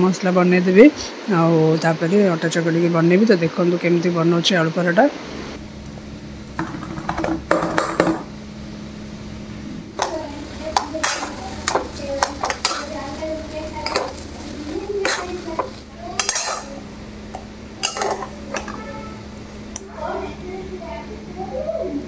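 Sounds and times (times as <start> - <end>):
metal spatula scraping a pan: 14.9 - 16.8
potato masher clinking on bowl: 15.0 - 16.8.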